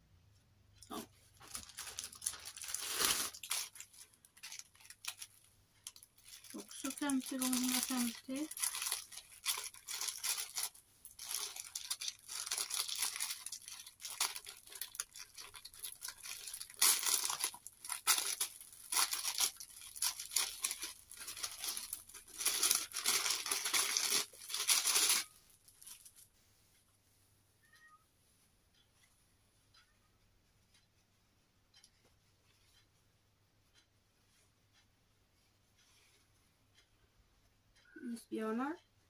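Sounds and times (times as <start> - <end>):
plastic packaging crinkling: 0.8 - 26.2.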